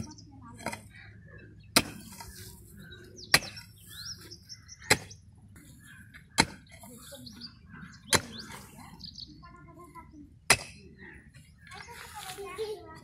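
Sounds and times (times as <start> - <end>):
birds chirping: 0.0 - 13.0
pickaxe striking ground: 1.8 - 2.4, 3.3 - 3.7, 4.8 - 5.2, 6.4 - 6.7, 10.5 - 10.8.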